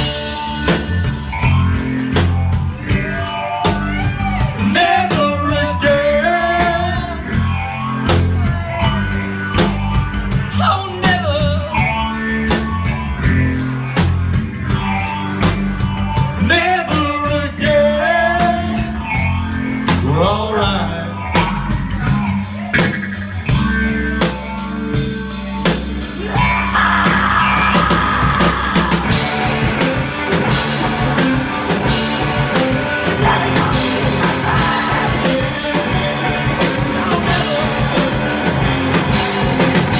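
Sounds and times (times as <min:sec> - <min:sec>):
bass guitar: 0:00.0 - 0:39.9
drum kit: 0:00.0 - 0:39.9
electric guitar: 0:00.0 - 0:39.9
person singing: 0:02.8 - 0:07.5, 0:26.1 - 0:39.1.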